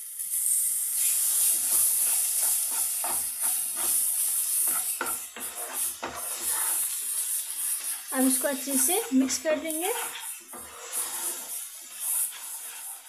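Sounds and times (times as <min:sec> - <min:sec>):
flour sizzling in hot fat: 0:00.0 - 0:13.0
spatula scraping and knocking pan: 0:01.2 - 0:13.0.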